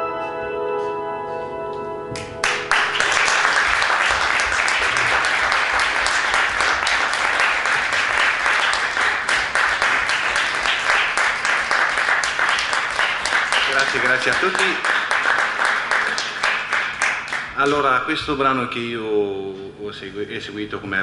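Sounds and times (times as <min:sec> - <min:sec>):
cimbalom chord ringing: 0:00.0 - 0:03.7
audience applauding: 0:02.2 - 0:18.0.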